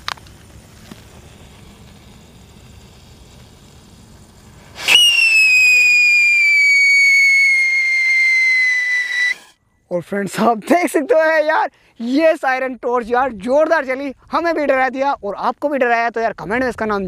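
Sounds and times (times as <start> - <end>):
shrill firework whistle: 4.7 - 9.6.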